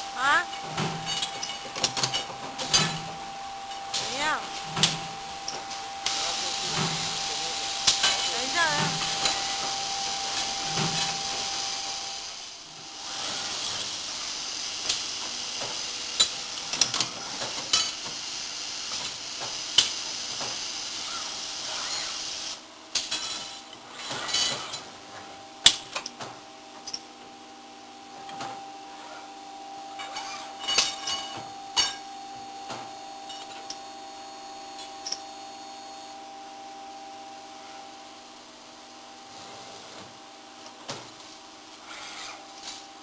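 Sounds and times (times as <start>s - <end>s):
steady hiss: 0.0s - 24.8s
machine hum with whine: 0.0s - 43.0s.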